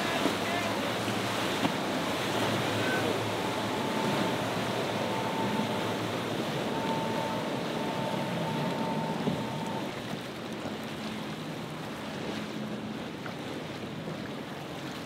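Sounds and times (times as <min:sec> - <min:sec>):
choppy water rushing: 0:00.0 - 0:15.0
speeding boat spray and wake: 0:00.0 - 0:15.0
faint steady whine: 0:00.7 - 0:09.9.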